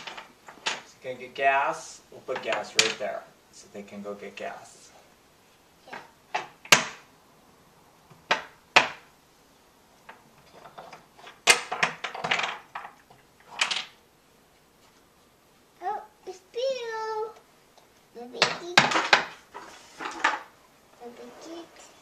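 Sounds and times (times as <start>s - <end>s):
wooden toy trains clacking: 18.4s - 20.5s.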